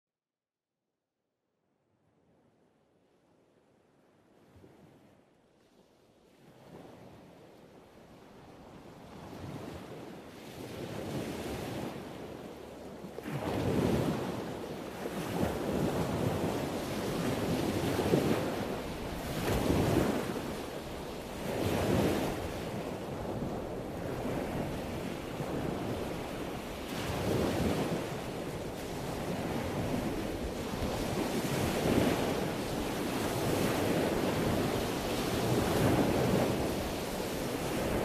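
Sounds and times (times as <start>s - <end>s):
ocean surf breaking: 23.8s - 38.0s.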